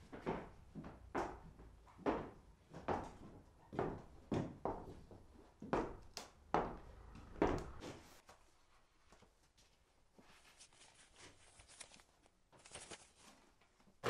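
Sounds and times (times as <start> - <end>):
footsteps on wooden floorboards: 0.0 - 8.2.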